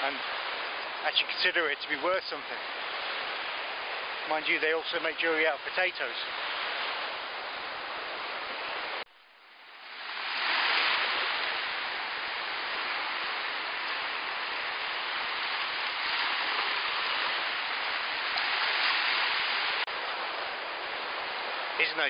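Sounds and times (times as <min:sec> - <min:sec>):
surf breaking on sandy shore: 0:09.8 - 0:22.0.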